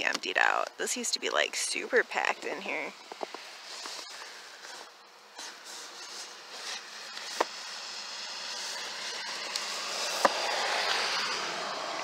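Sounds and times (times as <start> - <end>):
vehicle passing: 7.9 - 12.0.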